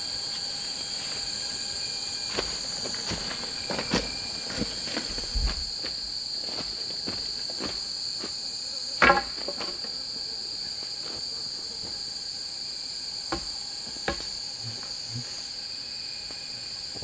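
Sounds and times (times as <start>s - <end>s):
insect chorus chirring: 0.0s - 17.0s.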